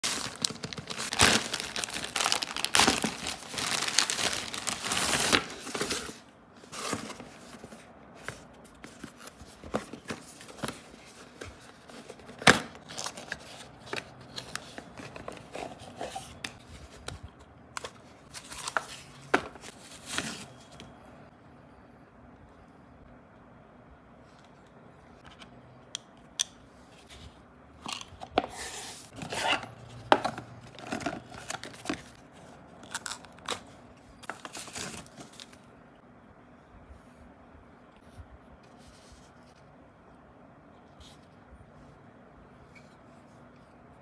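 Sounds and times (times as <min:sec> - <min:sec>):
plastic mailer bag crinkling and tearing: 0:00.0 - 0:06.1
handling cardboard boxes: 0:00.0 - 0:17.2, 0:28.2 - 0:32.7.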